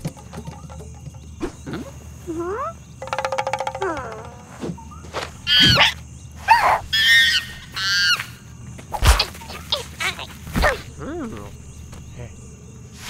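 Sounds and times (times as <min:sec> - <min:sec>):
cartoon monkey squeals and chatters: 0:02.3 - 0:02.8, 0:05.4 - 0:11.2.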